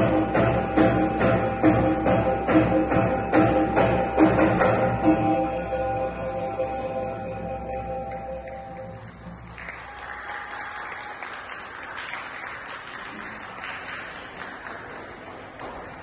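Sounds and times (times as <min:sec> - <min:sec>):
audience applause: 0:09.0 - 0:16.0.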